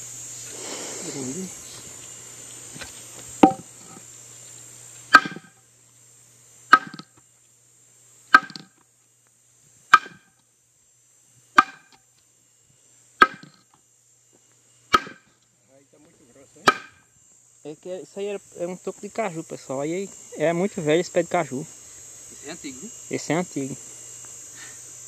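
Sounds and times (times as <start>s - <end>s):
high insect buzz: 0.0s - 25.0s
metal tool chopping stump: 3.4s - 4.0s, 5.1s - 5.6s, 6.7s - 7.1s, 8.3s - 8.7s, 9.9s - 10.3s, 11.6s - 12.0s, 13.2s - 13.6s, 14.9s - 15.3s, 16.6s - 17.0s.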